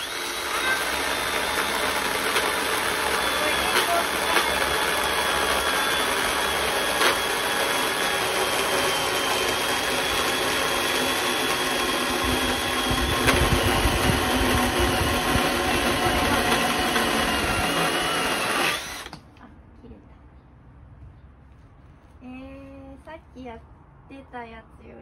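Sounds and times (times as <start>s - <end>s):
chainsaw cutting log: 0.0s - 19.2s.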